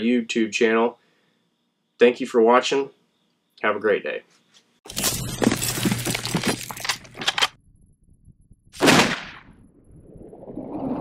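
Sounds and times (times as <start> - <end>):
crackling and shattering noise: 4.9 - 7.7
low hum: 4.9 - 11.0.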